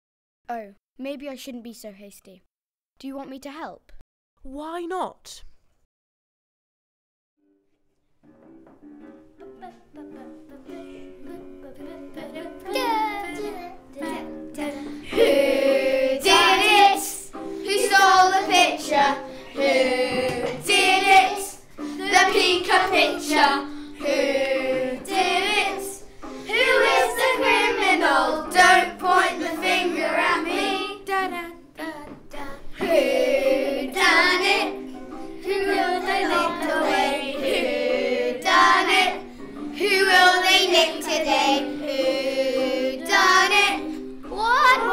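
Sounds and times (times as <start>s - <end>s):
held accompaniment chords: 8.3s - 44.9s
children singing: 9.4s - 44.9s.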